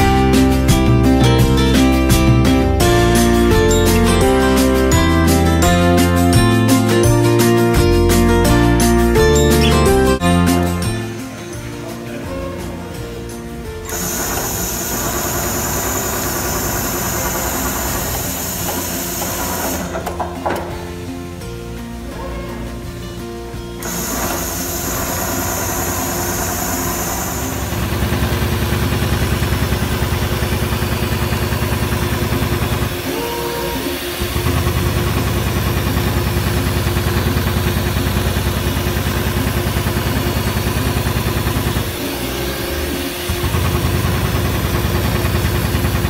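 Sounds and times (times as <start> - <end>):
machine hum: 13.4 - 22.1, 23.7 - 46.0
sewing machine needle stroking: 13.9 - 19.9, 23.8 - 28.5.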